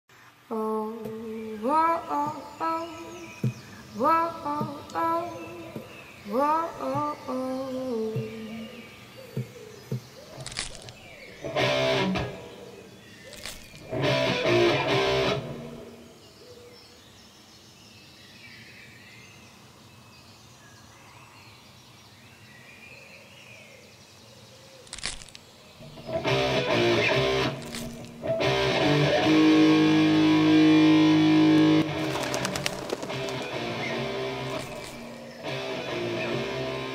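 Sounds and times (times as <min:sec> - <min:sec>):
rock music with electric guitar: 0:11.4 - 0:12.5, 0:13.8 - 0:15.9, 0:25.9 - 0:36.9.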